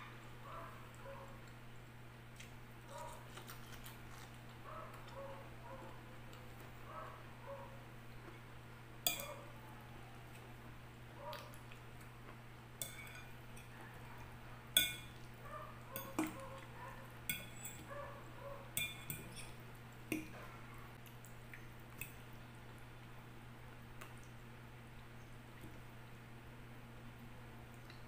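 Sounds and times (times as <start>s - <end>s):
soft chewing: 0.4s - 8.5s, 9.1s - 23.2s, 23.8s - 26.0s, 27.2s - 28.0s
fork clinking against glass bowl: 9.1s - 9.4s, 12.8s - 13.7s, 14.8s - 15.2s, 16.0s - 16.4s, 17.3s - 17.9s, 18.8s - 20.3s.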